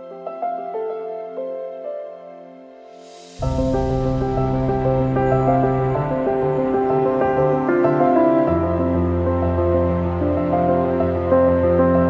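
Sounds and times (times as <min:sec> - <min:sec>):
gentle new-age music: 0:00.0 - 0:12.0
low drone: 0:03.2 - 0:12.0.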